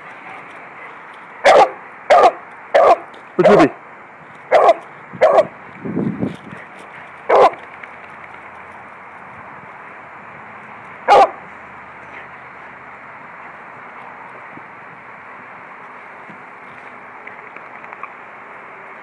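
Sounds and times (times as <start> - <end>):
dog barking: 1.4 - 3.7, 4.5 - 5.5, 7.3 - 7.6, 11.1 - 11.4.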